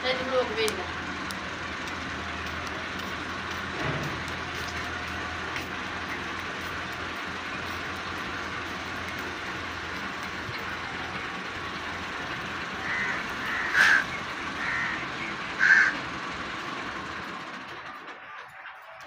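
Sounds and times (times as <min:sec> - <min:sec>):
parakeet harsh calls: 0:12.8 - 0:16.0.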